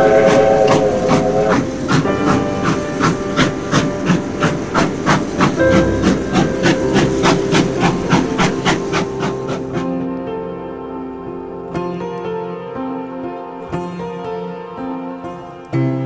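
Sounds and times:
steam locomotive chuffing: 0:00.0 - 0:10.2.

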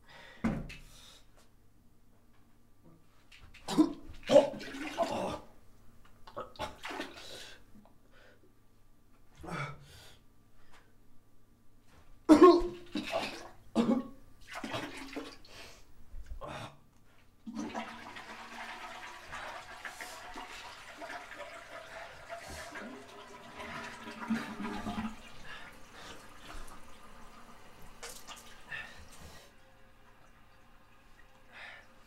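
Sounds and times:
faucet water splashing into basin: 0:17.5 - 0:32.0.

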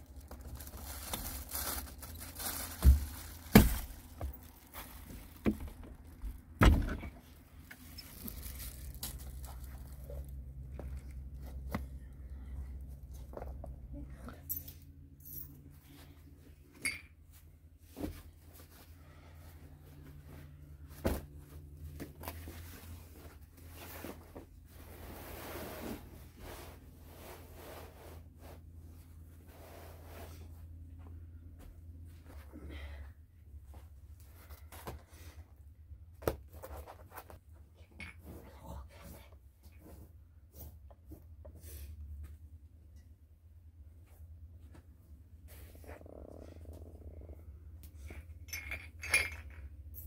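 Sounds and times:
handling knocks and rustles: 0:00.0 - 0:12.3, 0:12.9 - 0:24.9
low steady hum: 0:00.0 - 0:50.0.

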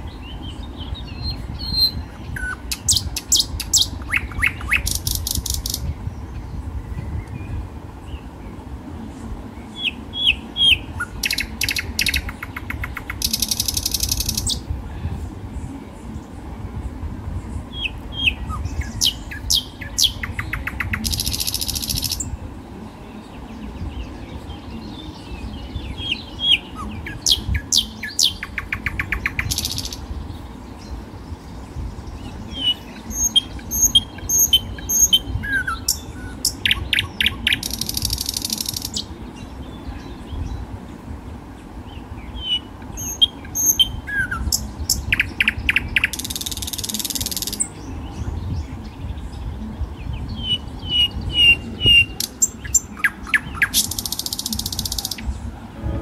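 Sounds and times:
birds chirping: 0:00.0 - 0:56.0
low steady rumble: 0:55.3 - 0:56.0.

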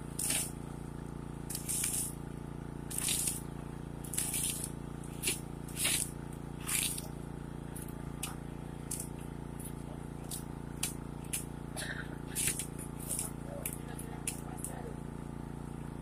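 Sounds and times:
steady machine hum: 0:00.0 - 0:16.0
short hissing bursts: 0:00.1 - 0:00.6, 0:01.5 - 0:02.2.

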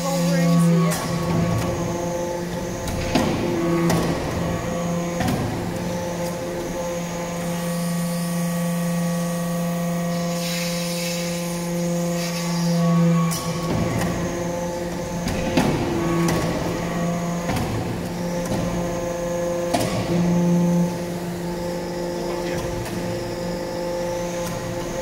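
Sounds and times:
hydraulic unit humming: 0:00.0 - 0:25.0
hiss: 0:10.1 - 0:12.8.

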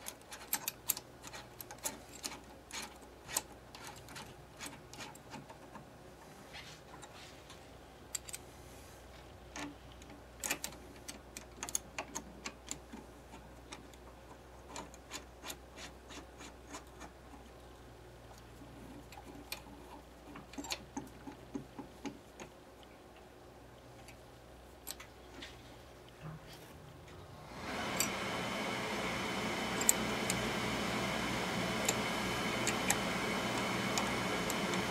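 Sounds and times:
hex key clicking on metal screws: 0:00.0 - 0:05.8, 0:08.1 - 0:08.4, 0:09.5 - 0:14.0, 0:14.7 - 0:16.8, 0:20.3 - 0:22.5.

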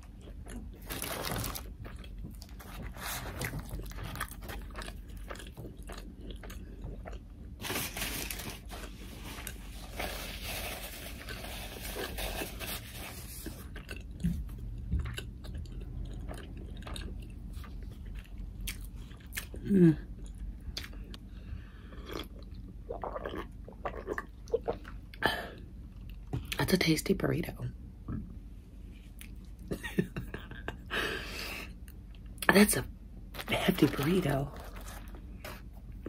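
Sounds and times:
close chewing with wet mouth clicks: 0:03.7 - 0:07.2, 0:13.7 - 0:19.6.

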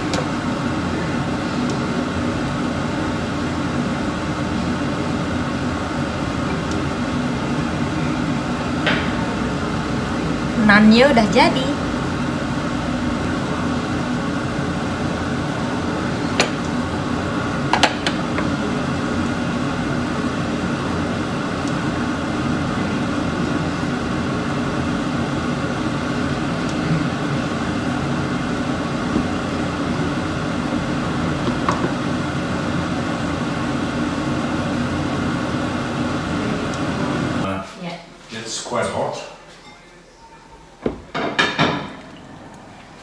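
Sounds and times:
kitchen fan whirring: 0:00.0 - 0:43.0.

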